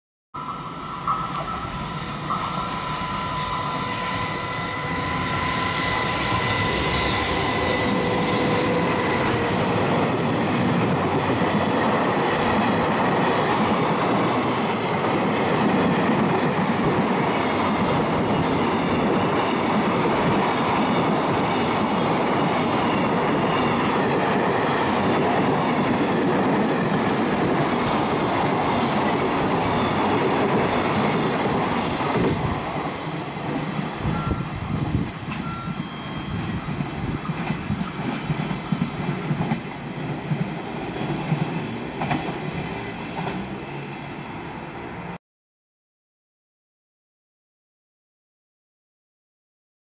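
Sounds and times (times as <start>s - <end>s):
high squeaks: 0.4s - 8.4s
freight train wheels rumbling: 0.4s - 44.2s.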